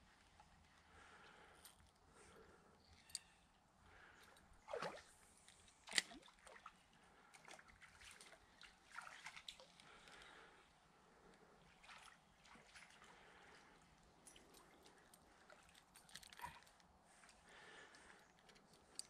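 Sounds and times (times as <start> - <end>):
river water trickling: 0.1 - 19.0
light water splash: 4.6 - 10.4, 11.6 - 16.7.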